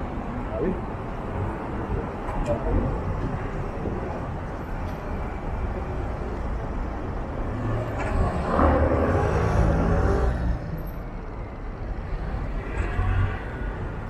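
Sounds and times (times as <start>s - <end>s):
street traffic noise: 0.0s - 14.0s
vehicle passing close by: 7.4s - 10.6s.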